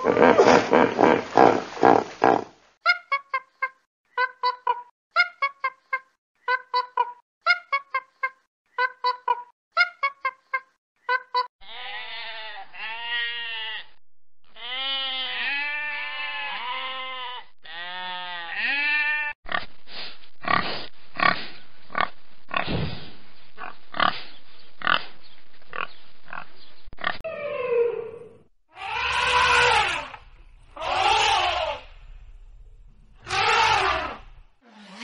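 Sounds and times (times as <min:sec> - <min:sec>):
pigs grunting: 0:00.0 - 0:02.5, 0:20.4 - 0:23.0, 0:23.6 - 0:25.1
sheep bleating: 0:11.6 - 0:19.4
pig squealing: 0:28.8 - 0:30.2, 0:30.8 - 0:31.9, 0:33.2 - 0:35.0.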